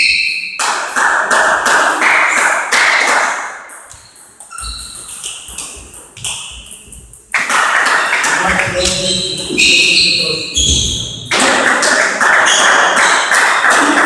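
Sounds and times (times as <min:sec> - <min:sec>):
noisy hall ambience: 0:00.0 - 0:14.0.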